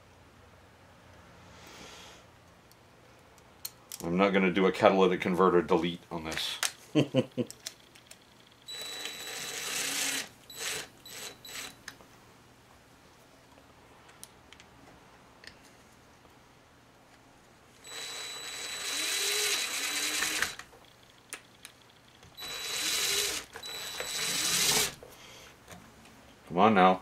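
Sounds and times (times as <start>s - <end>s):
cordless drill whining: 8.7s - 11.8s, 17.8s - 20.6s, 22.4s - 25.0s.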